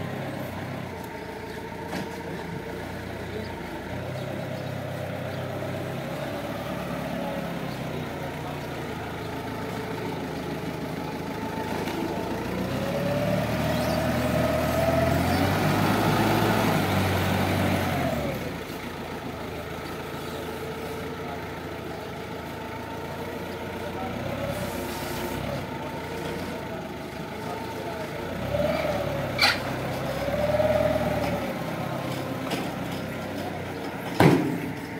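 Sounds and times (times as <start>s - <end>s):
forklift engine running: 0.0s - 34.9s
engine revving with whine: 12.4s - 18.5s.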